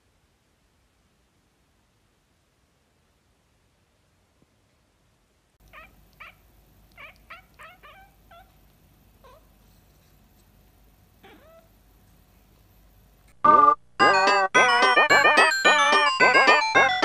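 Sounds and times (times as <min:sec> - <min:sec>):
cat meowing: 0:05.6 - 0:09.5, 0:11.2 - 0:11.7.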